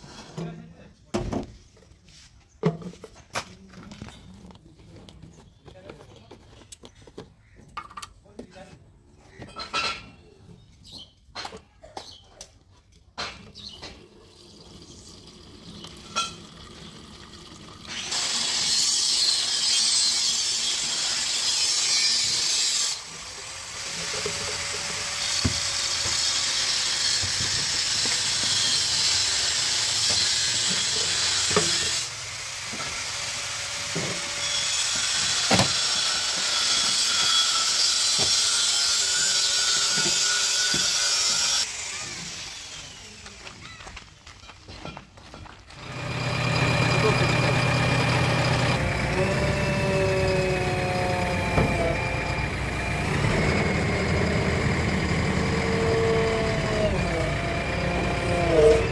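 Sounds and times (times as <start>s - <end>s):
fuel pouring into tank: 13.9s - 18.2s.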